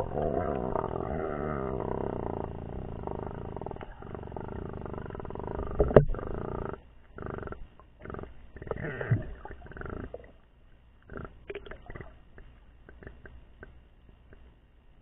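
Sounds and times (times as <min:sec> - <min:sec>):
muffled underwater rushes and gurgles: 0:00.0 - 0:06.6
low growl: 0:00.0 - 0:08.9
faint clicks and ticks: 0:03.0 - 0:08.8, 0:09.5 - 0:14.6.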